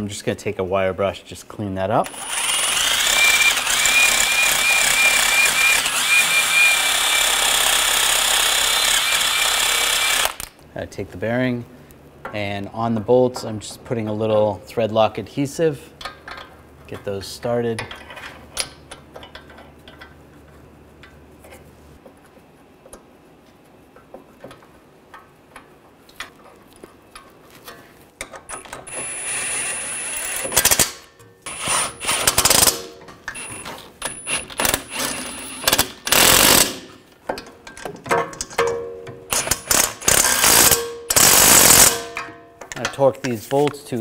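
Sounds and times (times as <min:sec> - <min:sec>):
faint clicks of bolts handled: 0:16.0 - 0:28.8
impact wrench hammering: 0:38.1 - 0:42.4.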